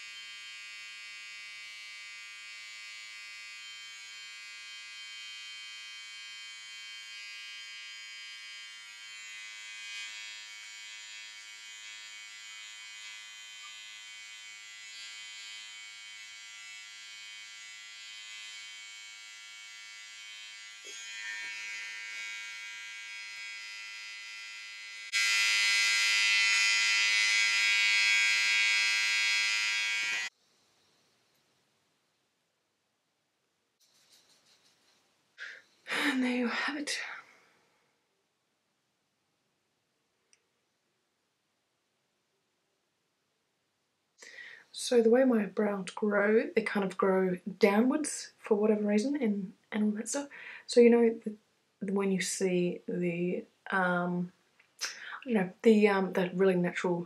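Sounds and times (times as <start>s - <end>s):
electric trimmer buzzing: 0.0s - 30.4s.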